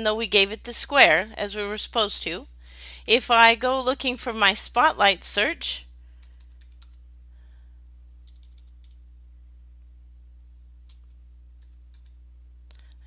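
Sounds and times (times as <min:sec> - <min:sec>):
steady low hum: 0:00.0 - 0:13.0
computer keyboard typing: 0:06.2 - 0:07.0, 0:08.2 - 0:09.0, 0:10.8 - 0:12.2.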